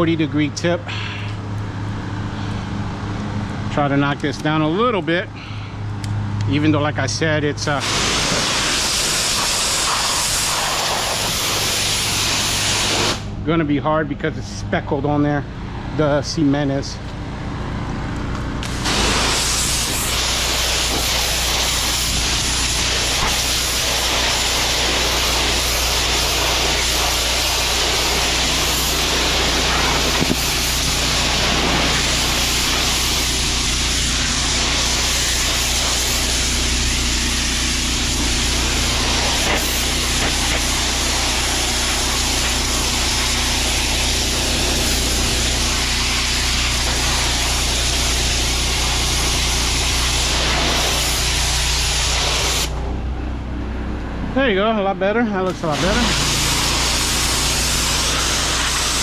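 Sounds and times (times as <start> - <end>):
steady low hum: 0.0 - 59.0
pressure washer spraying brick: 7.6 - 13.4, 18.6 - 52.8, 55.4 - 59.0.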